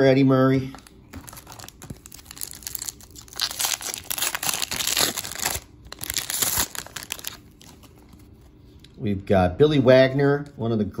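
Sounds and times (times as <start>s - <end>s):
foil wrapper tearing and crinkling: 1.1s - 8.2s.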